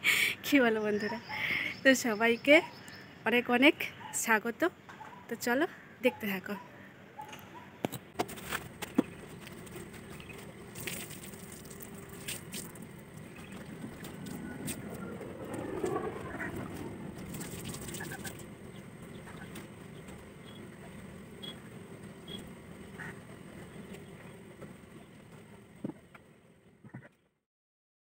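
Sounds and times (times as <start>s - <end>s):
birds calling: 8.8s - 24.4s.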